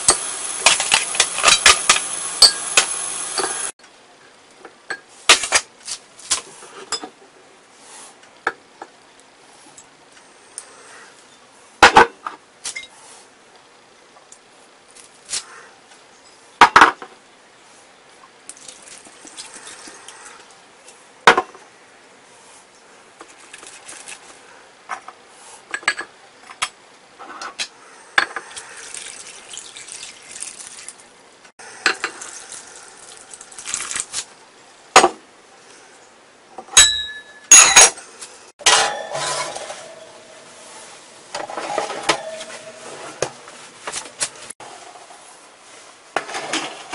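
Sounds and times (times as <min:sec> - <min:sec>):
liquid pouring into pot: 0:28.5 - 0:31.0, 0:31.9 - 0:34.2
glass and ceramic clinks: 0:36.8 - 0:38.0
pot clanking on wire rack: 0:38.6 - 0:40.4, 0:41.4 - 0:43.0.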